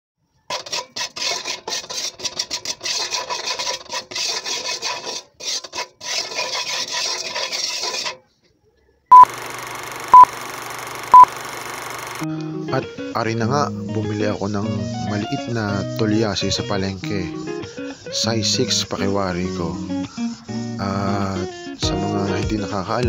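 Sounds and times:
metal ladle scraping salt in wok: 0.4s - 8.2s
short high beeps: 9.1s - 12.2s.

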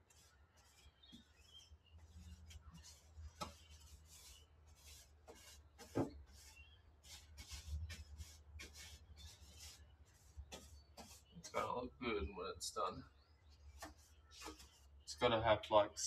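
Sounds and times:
paintbrush strokes on metal: 0.0s - 11.7s, 13.5s - 15.2s.

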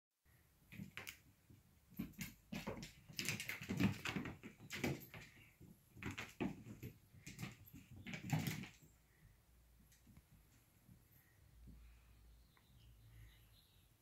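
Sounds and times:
cat paws scrabbling on wooden floor: 0.7s - 9.0s.

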